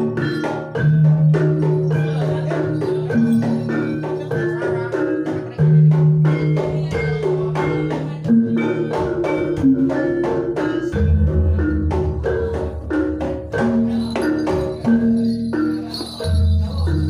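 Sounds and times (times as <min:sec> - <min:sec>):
deep low gamelan notes: 0:00.0 - 0:17.0
gamelan metal keys melody: 0:00.0 - 0:17.0.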